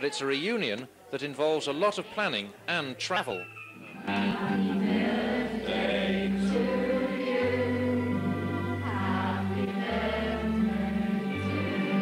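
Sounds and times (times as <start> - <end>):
choir singing held chords: 3.8 - 12.0.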